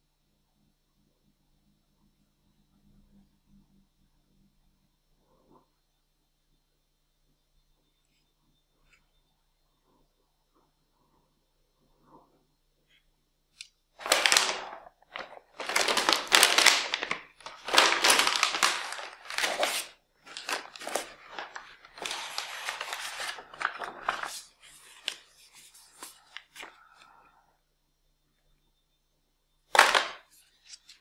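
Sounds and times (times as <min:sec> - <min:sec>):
paper rustling: 0:14.0 - 0:27.1, 0:29.7 - 0:31.0.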